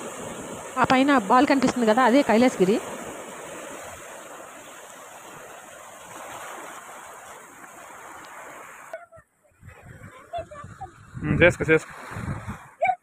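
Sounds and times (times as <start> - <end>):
waves breaking over rocks: 0.0 - 9.0.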